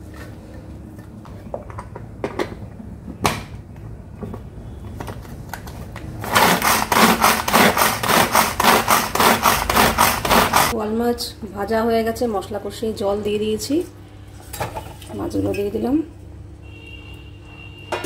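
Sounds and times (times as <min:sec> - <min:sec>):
vegetable chopper clattering: 0:06.2 - 0:10.7.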